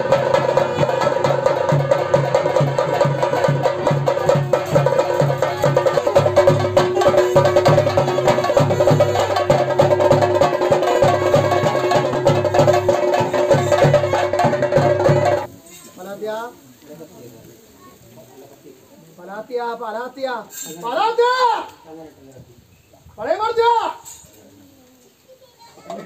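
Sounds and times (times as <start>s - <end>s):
chenda drums beating: 0.0s - 15.5s.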